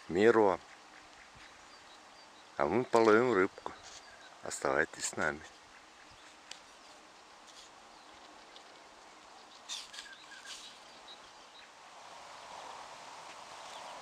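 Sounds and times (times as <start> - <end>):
soft steady rushing noise: 0.0 - 14.0
faint bird chirps: 0.7 - 4.5, 5.7 - 11.8.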